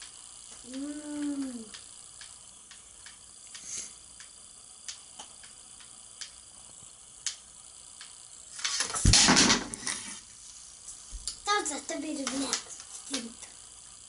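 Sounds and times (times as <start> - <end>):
wooden pieces crashing to floor: 8.8 - 9.8.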